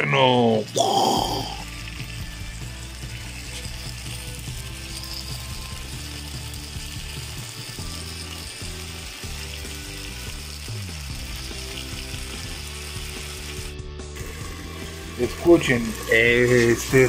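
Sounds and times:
potatoes deep-frying in oil: 0:00.3 - 0:17.0.

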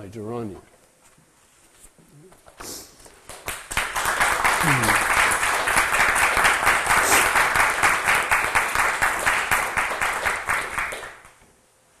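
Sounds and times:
audience applauding: 0:03.2 - 0:11.4.

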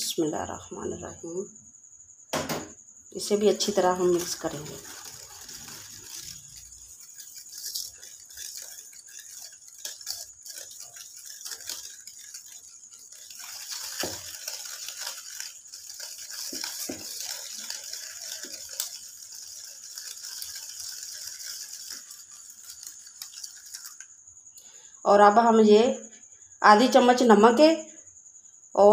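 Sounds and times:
whisk clicking against bowl: 0:03.2 - 0:24.0.

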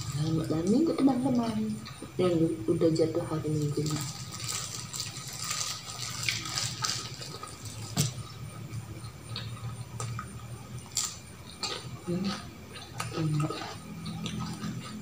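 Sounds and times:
eating sounds: 0:00.0 - 0:15.0
plastic bag crinkling: 0:03.5 - 0:08.2.

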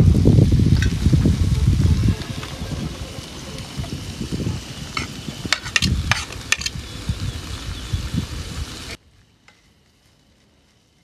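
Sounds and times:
curry sizzling in a pan: 0:00.0 - 0:09.0.

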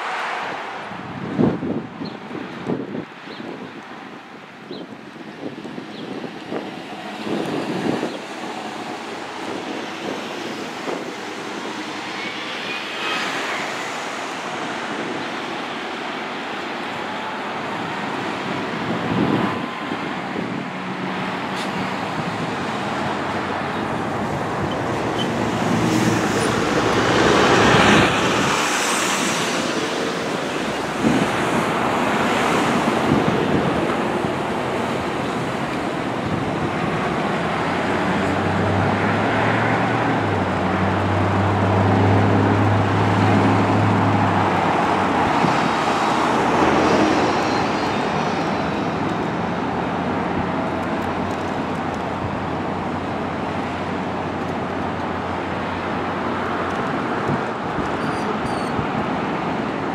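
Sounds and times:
truck diesel engines passing: 0:00.0 - 0:59.9
tyre noise in traffic: 0:00.0 - 0:59.9.

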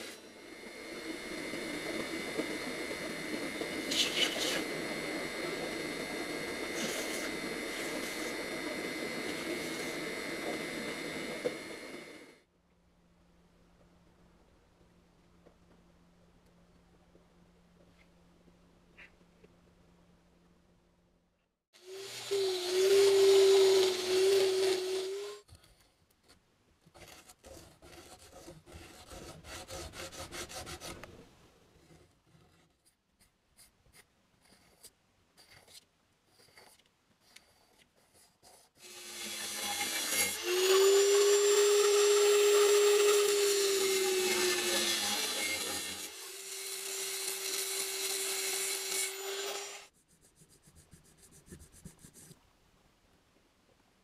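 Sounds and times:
electric power tool whining: 0:00.0 - 0:12.4, 0:21.8 - 0:25.4, 0:38.8 - 0:49.9
abrasive stick rubbing steel: 0:01.1 - 0:11.4
needle file strokes on steel: 0:03.6 - 0:04.7, 0:06.6 - 0:11.1, 0:26.9 - 0:31.1
light scrapes: 0:03.8 - 0:04.7.

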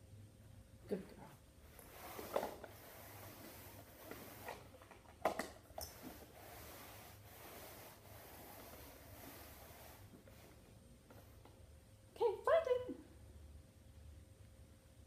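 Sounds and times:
plastic cups sliding on mat: 0:01.6 - 0:11.6.

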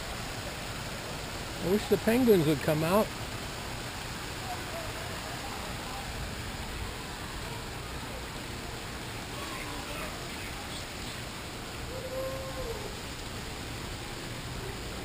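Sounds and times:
faint distant voices: 0:00.0 - 0:15.0
open-air ambient hiss: 0:00.0 - 0:15.0.

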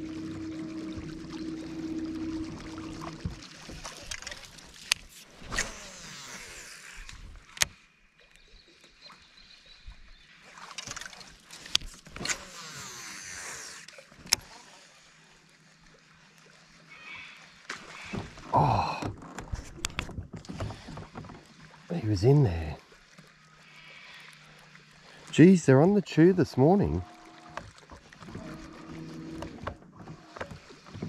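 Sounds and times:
fishing line whirring off spool: 0:00.0 - 0:08.0, 0:10.5 - 0:15.2
small electric motor humming: 0:05.4 - 0:07.2, 0:12.3 - 0:13.8.

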